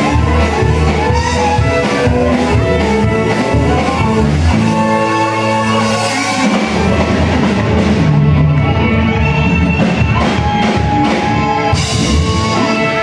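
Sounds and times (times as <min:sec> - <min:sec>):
bass guitar: 0:00.0 - 0:13.0
drum kit: 0:00.0 - 0:13.0
electric guitars sustained notes: 0:00.0 - 0:13.0.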